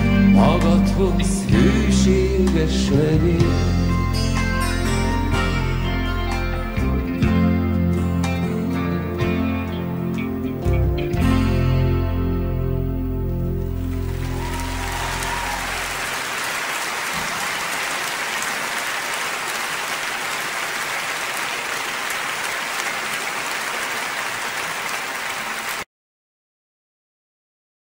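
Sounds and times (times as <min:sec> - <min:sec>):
guitar tune: 0:00.0 - 0:16.1
crowd applauding: 0:13.8 - 0:25.9.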